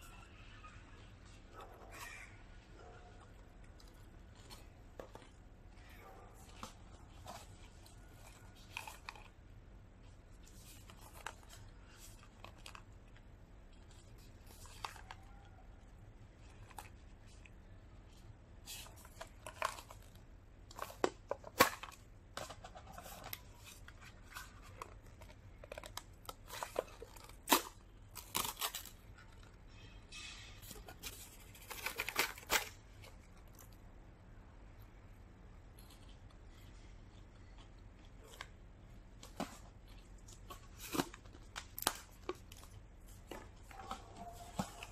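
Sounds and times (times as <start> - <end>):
paper tub crinkling and tapping: 39.2 - 44.9.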